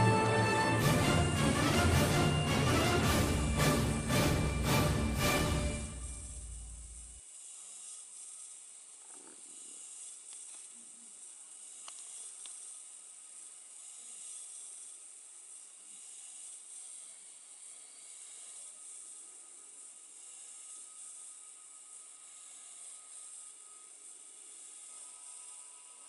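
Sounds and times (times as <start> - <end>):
music: 0.0 - 7.0
faint steady hiss: 0.0 - 26.0
faint ticks: 7.2 - 19.1.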